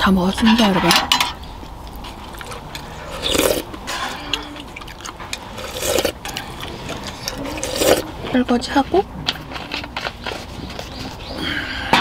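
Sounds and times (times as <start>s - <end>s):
person slurping broth: 2.4s - 4.4s, 5.4s - 8.1s.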